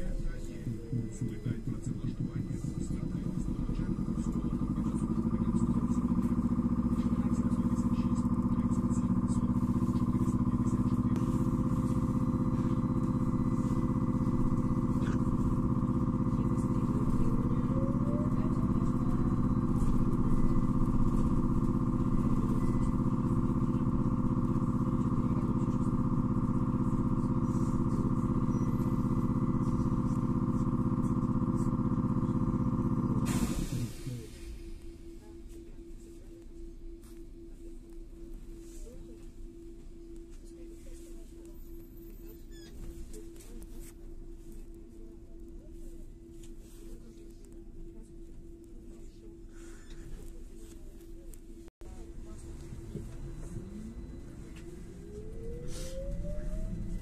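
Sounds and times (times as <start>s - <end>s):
road rumble: 0.0s - 35.0s, 51.8s - 57.0s
faint rising whine: 52.0s - 57.0s.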